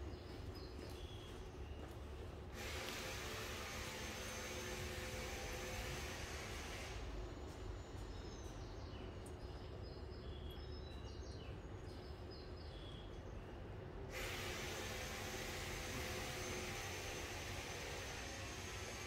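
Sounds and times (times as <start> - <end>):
loud even hiss: 2.5 - 7.2, 14.1 - 19.0.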